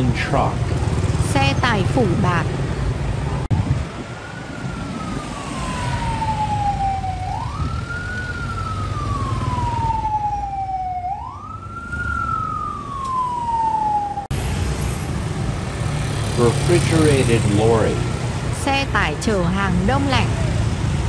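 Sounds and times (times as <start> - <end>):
street traffic: 0.0 - 21.0
emergency siren wailing: 3.5 - 14.3, 18.6 - 21.0.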